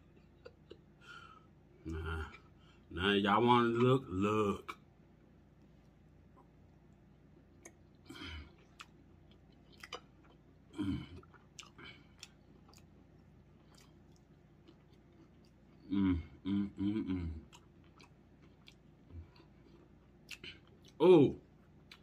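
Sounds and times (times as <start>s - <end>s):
person chewing: 7.3s - 22.0s.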